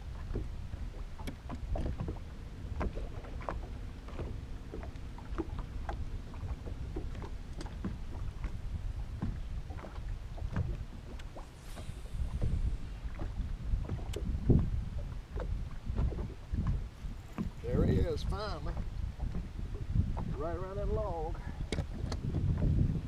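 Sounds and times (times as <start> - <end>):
waves lapping against boat hull: 0.0 - 23.0
wind rumble on microphone: 0.0 - 23.0.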